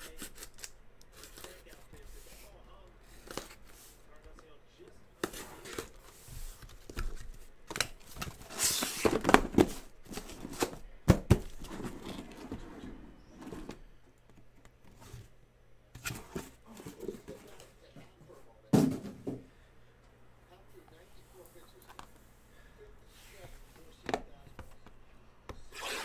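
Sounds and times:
tape tearing: 0.1 - 1.6
cardboard scraping and rustling: 5.2 - 13.9.

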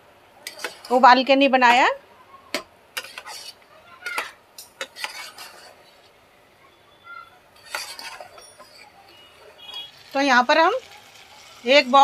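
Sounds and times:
metal spoon scraping cooker: 0.4 - 1.1, 3.0 - 6.0, 7.6 - 10.3.

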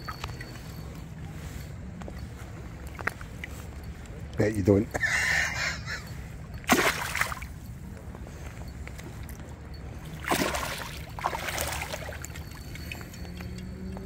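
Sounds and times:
water splashing: 6.6 - 7.6, 10.0 - 13.6.

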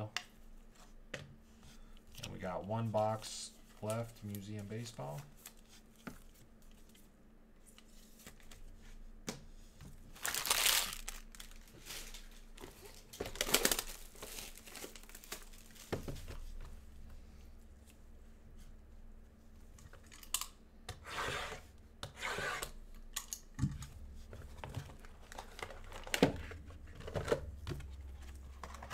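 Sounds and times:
plastic wrap crinkling: 10.1 - 16.1.

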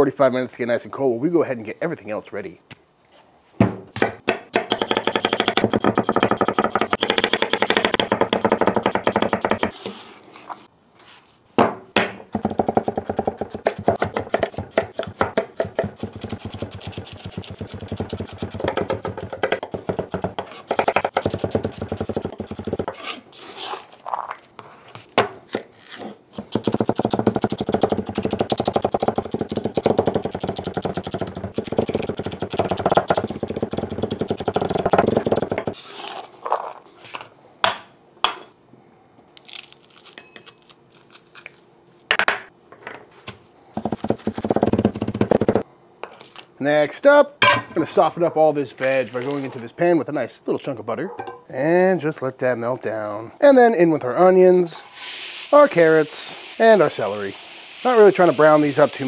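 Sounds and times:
knife chopping on wooden board: 11.6 - 23.0, 26.4 - 35.8.

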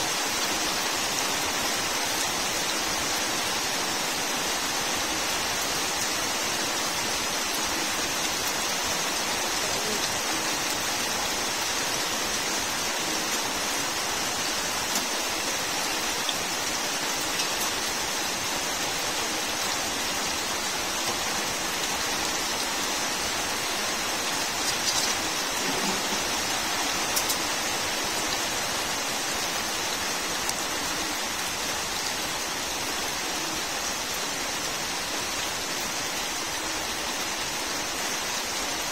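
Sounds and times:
steady rain on plants: 0.0 - 38.9
sharp raindrops ticking: 13.1 - 18.0, 23.3 - 28.6.

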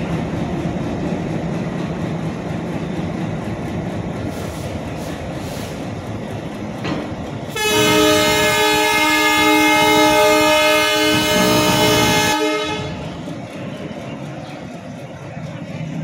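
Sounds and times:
locomotive engine and wheel rumble: 0.0 - 16.0
locomotive air horn blast: 7.6 - 13.0.

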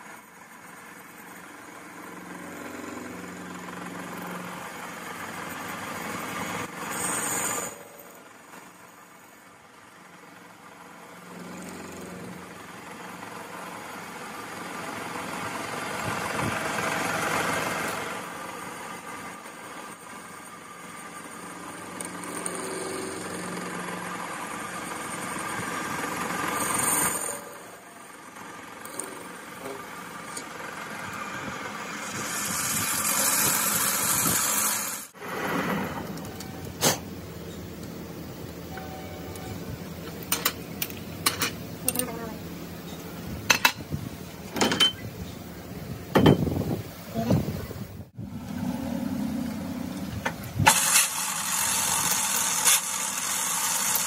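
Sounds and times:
metal lathe cutting steel: 0.0 - 36.7, 50.6 - 54.0.

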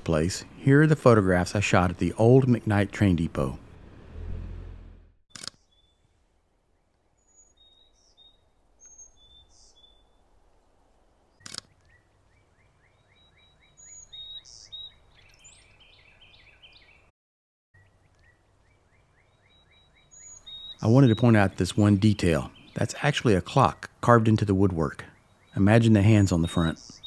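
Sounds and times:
camera shutter clicking: 5.3 - 5.6, 11.4 - 11.7
birds chirping: 6.7 - 10.3, 11.3 - 17.1, 17.8 - 27.0.

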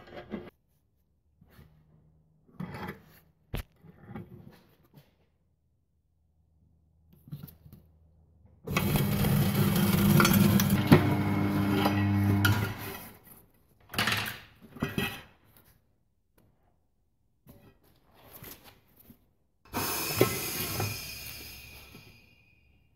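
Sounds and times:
tyre changing machine motor hum: 8.7 - 13.1.

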